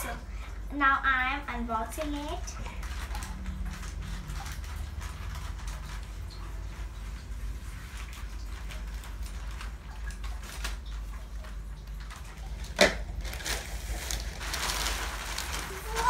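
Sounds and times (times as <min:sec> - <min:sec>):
plastic mailer bag crinkling: 0:07.8 - 0:16.0.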